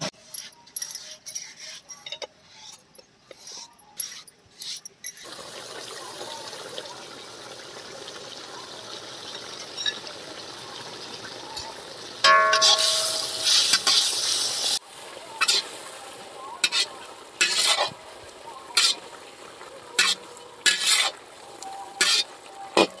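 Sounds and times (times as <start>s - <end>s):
steady watery hiss: 2.5s - 23.0s.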